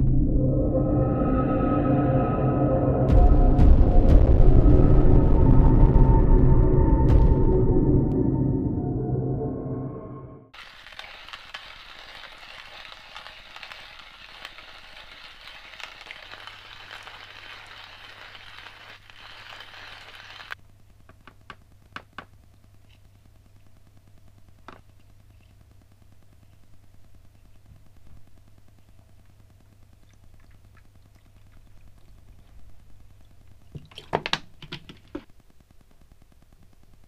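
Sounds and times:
coffee grinder grinding beans: 10.6 - 20.6
faint low hum: 20.6 - 37.0.

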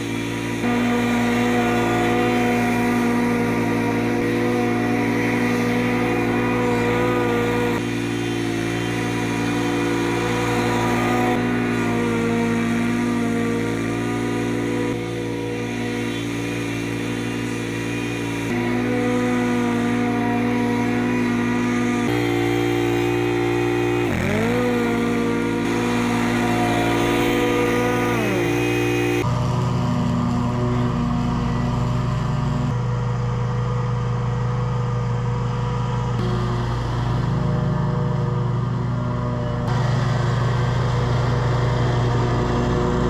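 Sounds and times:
mower engine hum cutting grass: 0.0 - 43.0.

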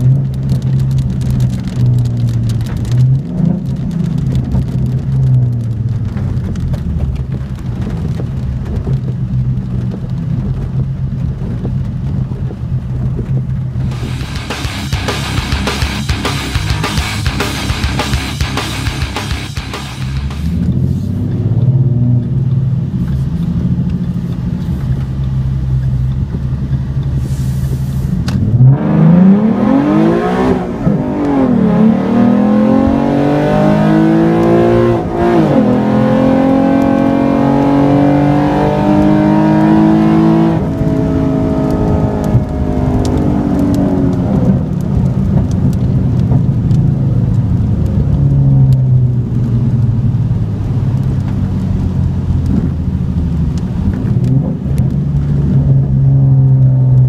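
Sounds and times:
rain ticking on car: 0.0 - 28.7, 29.4 - 57.0
car engine revving: 13.7 - 22.9, 28.3 - 44.8.

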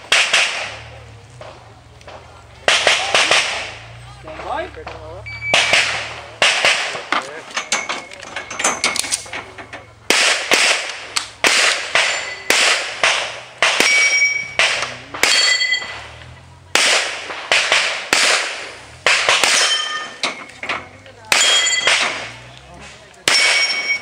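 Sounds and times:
handgun shots: 0.0 - 0.9, 2.7 - 3.8, 5.5 - 7.2, 10.1 - 16.1, 16.8 - 20.2, 21.3 - 22.4, 23.2 - 24.0
steel targets ringing: 5.3 - 17.3, 18.1 - 22.5, 23.2 - 24.0.

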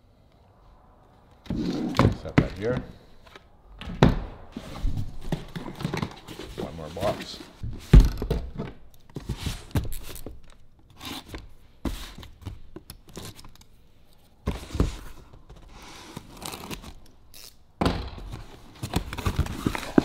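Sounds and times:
packing tape tearing: 16.0 - 17.6.

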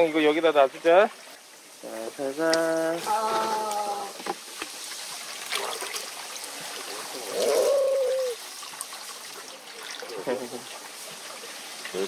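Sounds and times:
stream trickling: 0.0 - 12.0
short voice-like cry: 3.0 - 4.2.

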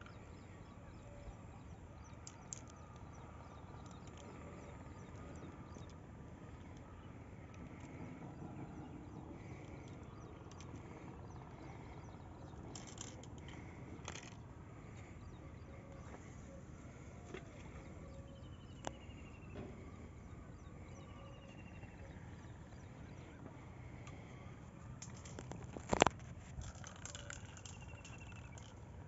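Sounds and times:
low rumble of wind: 0.0 - 29.0.

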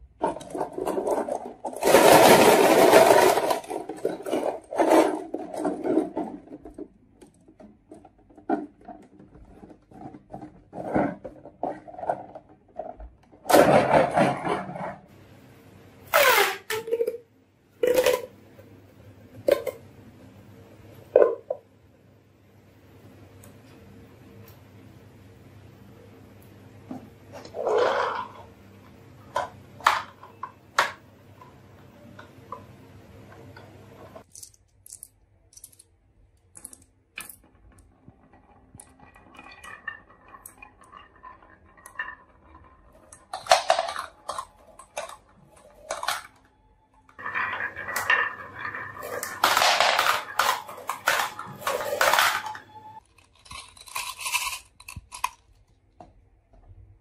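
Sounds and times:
marbles rattling on wooden track: 0.2 - 6.8, 47.2 - 52.6.

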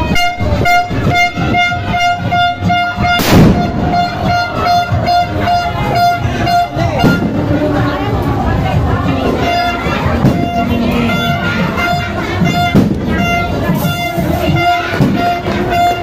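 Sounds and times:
pulsing horn-like tone: 0.0 - 7.5, 9.2 - 16.0
firecracker bang: 3.0 - 5.2, 12.7 - 13.2
sharp crackling pops: 3.2 - 3.7.

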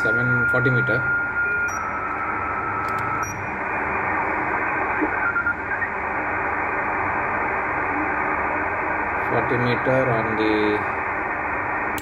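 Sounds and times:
faint radio whistles: 0.0 - 3.6, 4.8 - 6.1
radio receiver hiss: 2.0 - 12.0.

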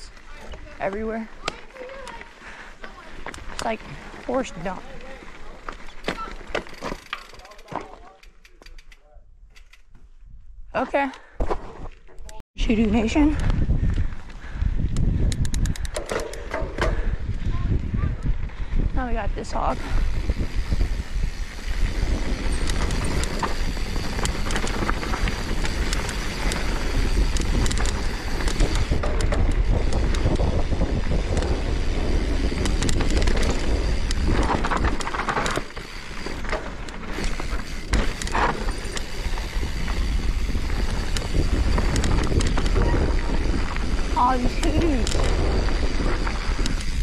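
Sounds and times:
bike tyres on dirt trail: 0.0 - 47.0
bike clattering over bumps: 4.8 - 8.8, 15.3 - 17.7, 20.0 - 47.0
wind rumbling on microphone: 12.6 - 47.0.

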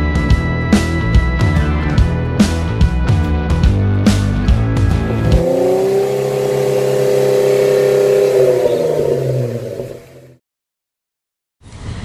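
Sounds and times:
intro music with sharp beats: 0.2 - 6.0
engine rev sound effect: 5.0 - 10.4.

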